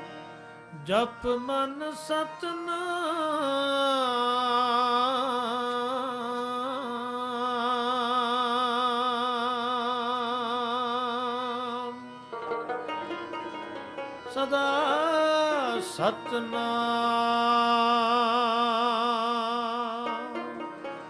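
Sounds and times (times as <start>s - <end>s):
man singing long wavering note: 13.0s - 21.0s.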